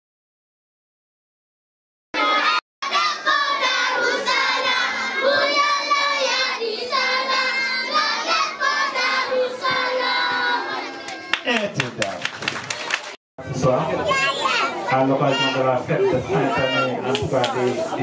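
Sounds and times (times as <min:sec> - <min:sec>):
children singing: 0:02.2 - 0:11.3.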